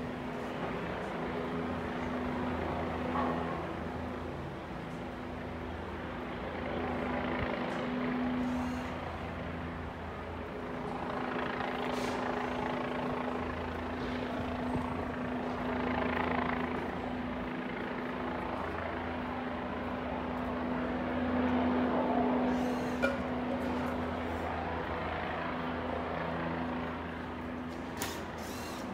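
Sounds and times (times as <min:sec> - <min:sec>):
engine drone: 0:00.0 - 0:28.9.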